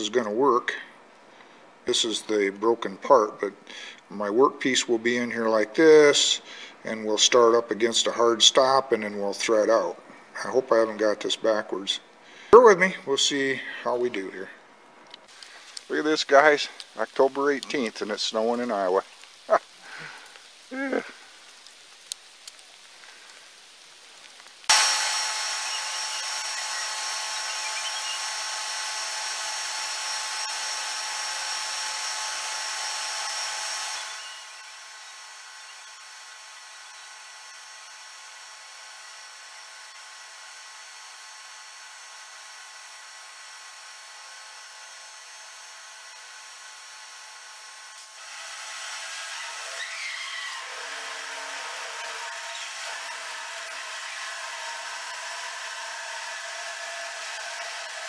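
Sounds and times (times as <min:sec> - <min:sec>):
metal lathe gear whine: 0:24.7 - 0:38.0, 0:48.6 - 0:58.0
drill bit boring into metal: 0:24.7 - 0:58.0.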